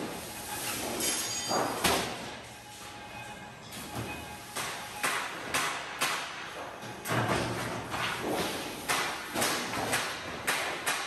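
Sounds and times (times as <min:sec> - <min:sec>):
sharp metallic knocks on sheet steel: 0:04.5 - 0:06.4, 0:08.3 - 0:11.0.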